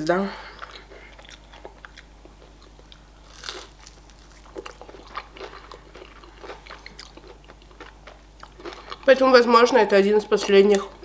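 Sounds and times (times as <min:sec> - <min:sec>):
person crunching fried chicken: 0:00.6 - 0:09.1.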